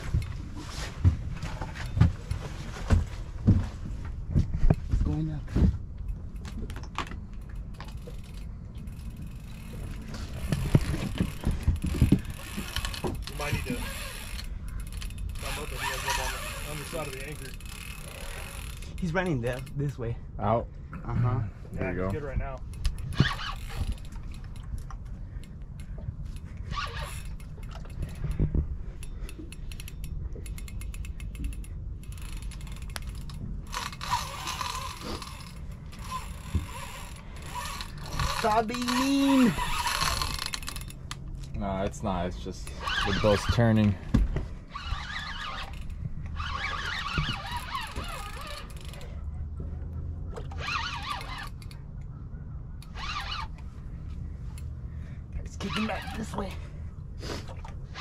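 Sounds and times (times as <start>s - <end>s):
fishing reel clicks and knocks: 6.0s - 20.0s, 22.5s - 28.4s, 29.0s - 41.5s, 44.7s - 49.1s, 50.3s - 52.1s, 52.8s - 53.7s.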